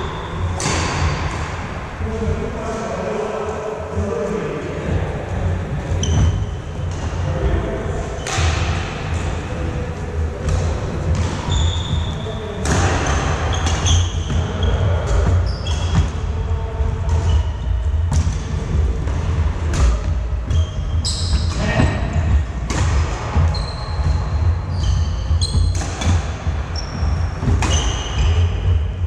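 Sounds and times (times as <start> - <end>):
steady low hum: 0.0 - 29.0
racket striking shuttlecock: 0.5 - 1.6, 8.2 - 9.2, 12.6 - 14.4, 19.0 - 20.2, 25.5 - 26.4
sneakers squeaking on court: 5.9 - 7.3, 10.4 - 16.2, 17.0 - 18.4, 19.8 - 29.0.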